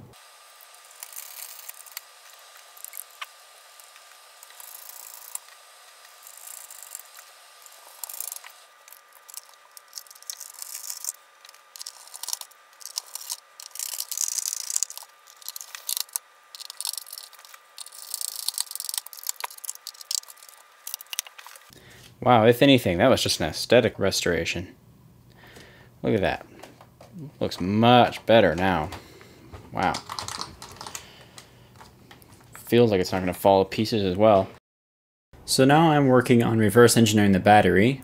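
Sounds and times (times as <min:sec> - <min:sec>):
screwdriver clicking and scraping: 0:00.6 - 0:21.7.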